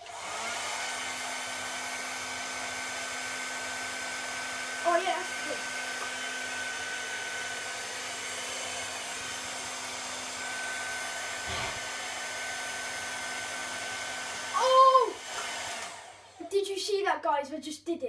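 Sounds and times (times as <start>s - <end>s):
hairdryer running with high whine: 0.0s - 16.5s
loud vocal exclamation: 14.6s - 15.2s.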